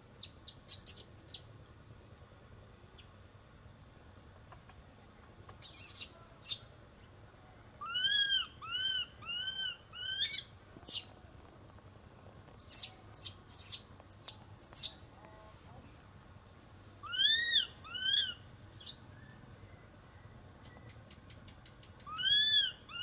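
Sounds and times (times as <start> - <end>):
monkey shrill cries: 7.8 - 11.0, 17.0 - 19.0, 22.1 - 23.0.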